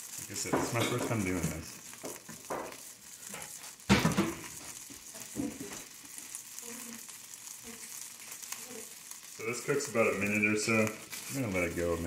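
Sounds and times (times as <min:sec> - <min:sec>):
rice sizzling in a skillet: 0:00.0 - 0:12.0
spatula stirring in a skillet: 0:00.0 - 0:12.0
loud thump: 0:03.9 - 0:04.4.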